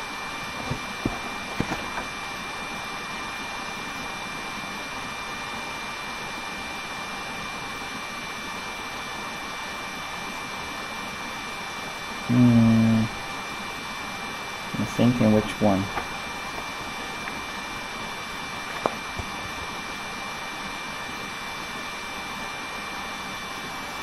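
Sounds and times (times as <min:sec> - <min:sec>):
fan-like background noise: 0:00.0 - 0:24.0
high constant whine: 0:00.0 - 0:24.0
person humming: 0:12.3 - 0:13.2.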